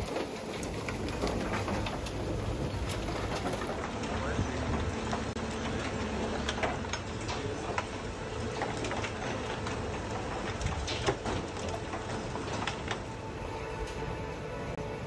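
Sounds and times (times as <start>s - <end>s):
waste clattering and knocking: 0.0s - 13.3s
machinery low rumble: 0.0s - 15.0s.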